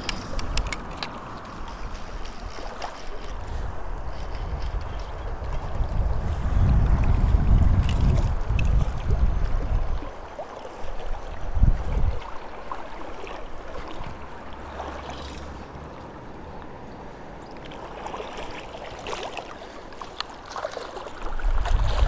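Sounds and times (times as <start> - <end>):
river water rushing: 0.0 - 6.6, 8.3 - 22.0
wind buffeting microphone: 0.0 - 14.9, 21.2 - 22.0.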